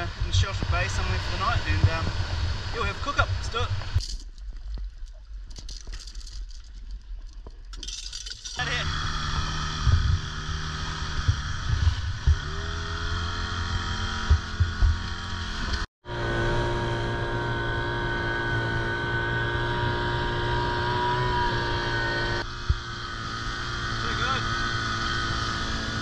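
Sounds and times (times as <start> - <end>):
boat motor running: 8.6 - 26.0.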